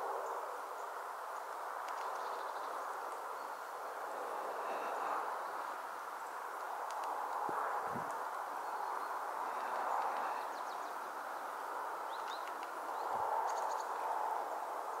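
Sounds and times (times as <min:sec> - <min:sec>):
outdoor background noise: 0:00.0 - 0:15.0
small birds chirping: 0:00.2 - 0:04.0, 0:08.1 - 0:14.0.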